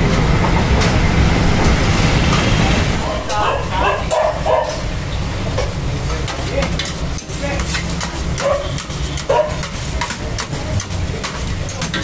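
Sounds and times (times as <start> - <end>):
steady low rumble: 0.0 - 7.5
crowd chatter: 2.4 - 12.0
metal utensils scraping on a griddle: 6.1 - 12.0.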